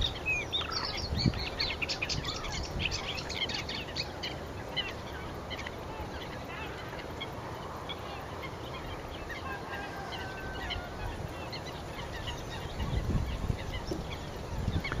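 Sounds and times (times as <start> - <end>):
wind noise on microphone: 0.0 - 3.9, 9.8 - 15.0
waterbirds calling: 0.0 - 15.0.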